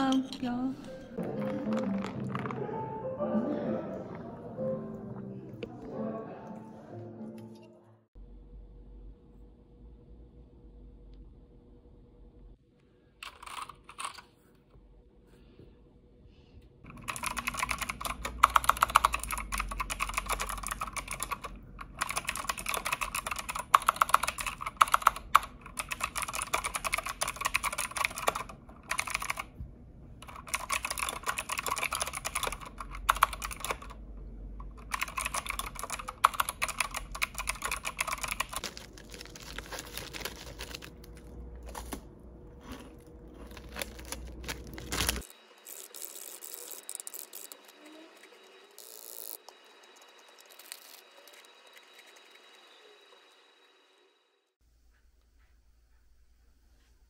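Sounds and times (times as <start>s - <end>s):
typing on a computer keyboard: 13.2s - 14.2s, 16.9s - 29.5s, 30.2s - 34.0s, 34.6s - 38.6s.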